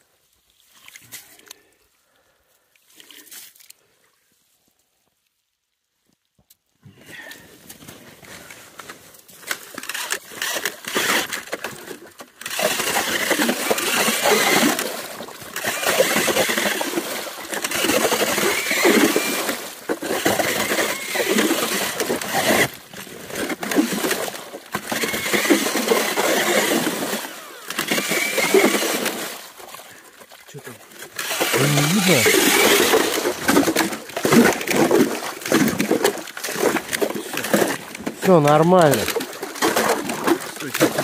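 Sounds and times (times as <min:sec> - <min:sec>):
ice auger boring through ice: 0:07.8 - 0:41.0.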